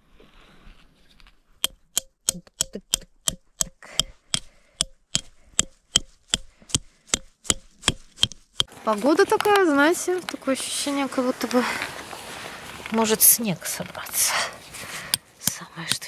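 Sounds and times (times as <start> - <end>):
hammer driving tent peg: 1.6 - 8.7, 15.1 - 16.0.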